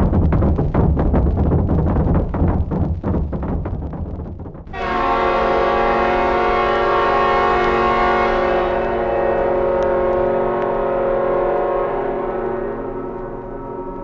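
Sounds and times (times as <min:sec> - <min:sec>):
sustained loud chord: 0:04.7 - 0:14.0.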